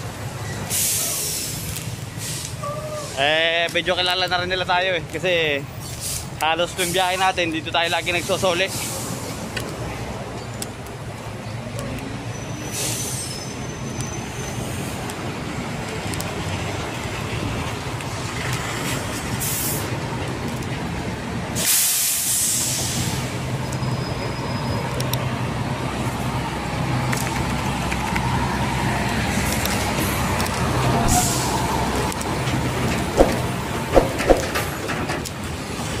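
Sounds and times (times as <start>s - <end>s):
heavy truck engines running: 0.0s - 36.0s
air brake hissing: 0.6s - 3.2s, 5.8s - 7.2s, 8.0s - 9.4s, 12.6s - 13.6s, 21.6s - 23.3s, 31.0s - 31.7s
sharp knocks: 33.2s - 34.7s.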